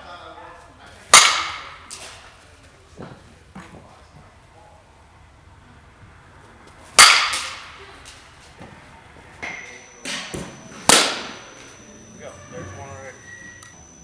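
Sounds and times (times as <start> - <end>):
bat striking softball: 1.1 - 2.2, 6.9 - 7.8, 9.4 - 11.5.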